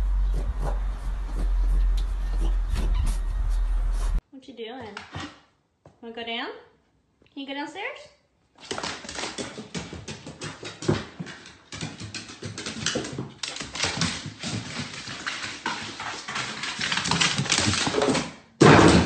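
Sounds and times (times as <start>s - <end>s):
dog claws tapping on wooden stairs: 8.6s - 18.4s.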